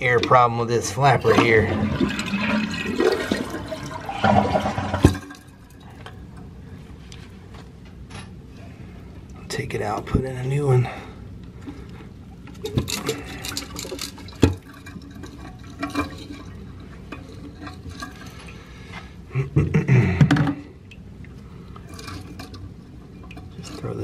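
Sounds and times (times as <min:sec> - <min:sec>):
water sloshing in toilet tank: 0:00.0 - 0:06.5, 0:11.6 - 0:18.9, 0:20.2 - 0:24.0
knocks and clatter in tank: 0:01.4 - 0:05.4
water trickle: 0:20.9 - 0:24.0.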